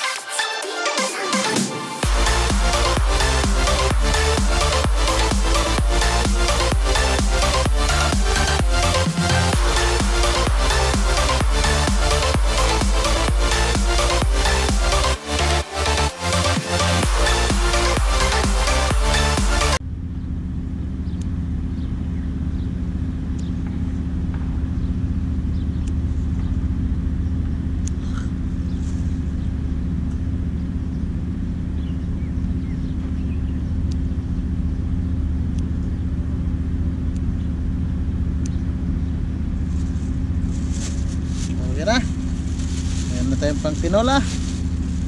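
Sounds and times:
electronic music: 0.0s - 19.8s, 41.1s - 45.0s
engine droning: 1.4s - 45.0s.

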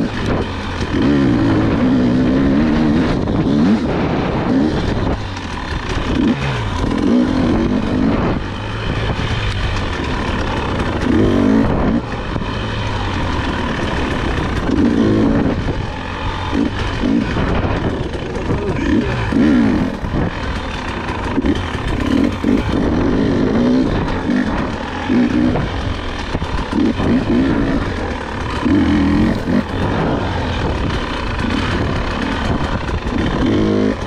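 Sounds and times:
dirt bike engine revving: 0.0s - 34.0s.

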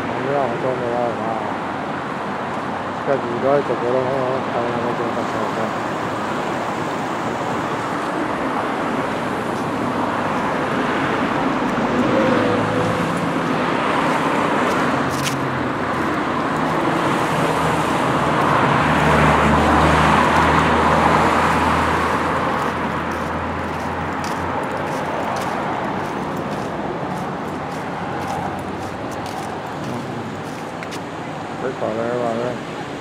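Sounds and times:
road traffic: 0.0s - 33.0s
low engine hum: 5.1s - 31.2s.

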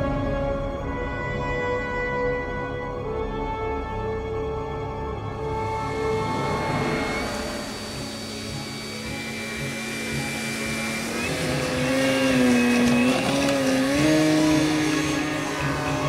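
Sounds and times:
model airplane motor whine: 5.9s - 16.0s.

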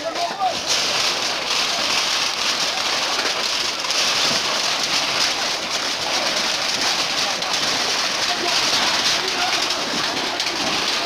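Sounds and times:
fire crackling: 0.4s - 11.0s.

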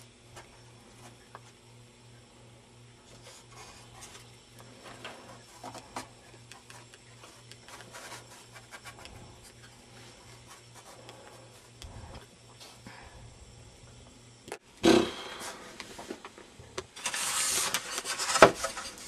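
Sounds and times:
low pulsing hum: 0.0s - 15.7s
hands rubbing and scraping parts: 3.1s - 12.8s.

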